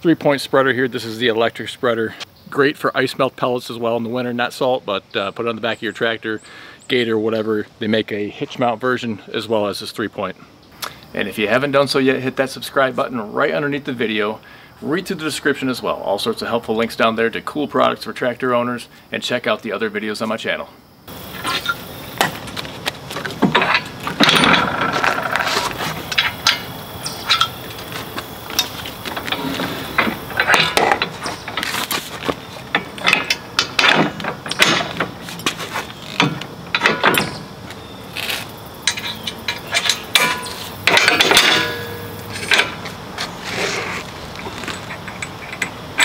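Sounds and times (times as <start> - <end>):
metal clanks and rattles: 21.1 - 37.5, 38.3 - 43.0, 44.4 - 46.0.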